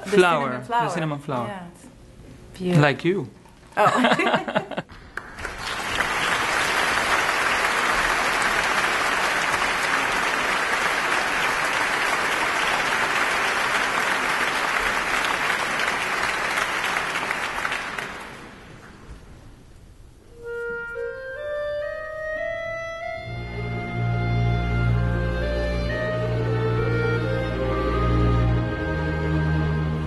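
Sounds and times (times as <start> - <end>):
audience applauding: 4.8 - 19.0.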